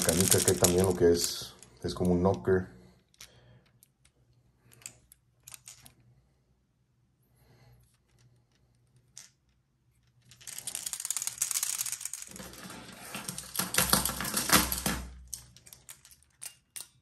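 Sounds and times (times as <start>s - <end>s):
lure rattling: 0.0s - 2.2s.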